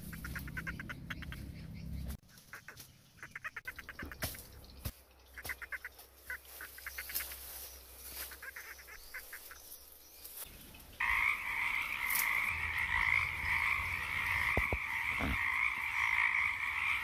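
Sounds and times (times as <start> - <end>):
frog chorus: 11.0 - 17.0
frog pulsed croaks: 11.0 - 17.0.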